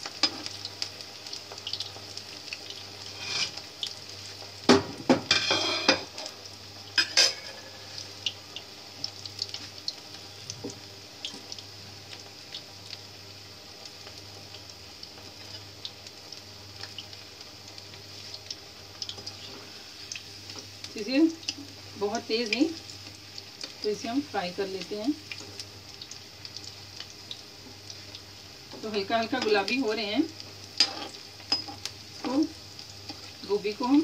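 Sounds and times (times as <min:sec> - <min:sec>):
food sizzling in hot oil: 0:00.0 - 0:34.0
metal spoon clanking against pan: 0:07.0 - 0:07.6, 0:30.8 - 0:31.8.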